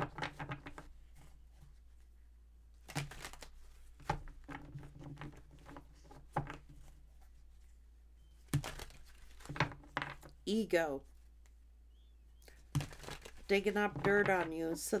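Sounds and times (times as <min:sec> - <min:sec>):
cards being shuffled: 0:02.8 - 0:07.6, 0:08.5 - 0:10.3, 0:12.5 - 0:14.9.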